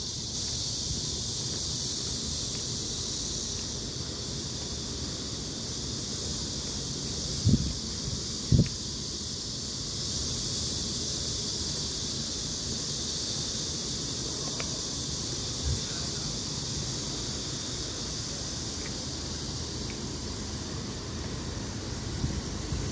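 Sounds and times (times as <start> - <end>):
wind on microphone: 7.4 - 7.8.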